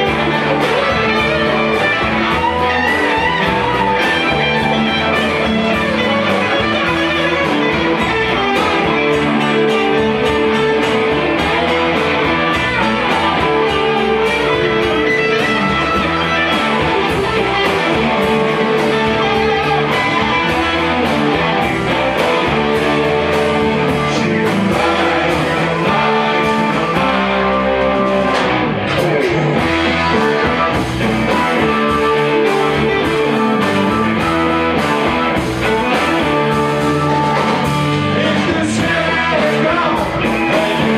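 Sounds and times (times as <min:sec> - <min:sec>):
electric guitars: 0:00.0 - 0:40.9
live rock band: 0:00.0 - 0:40.9.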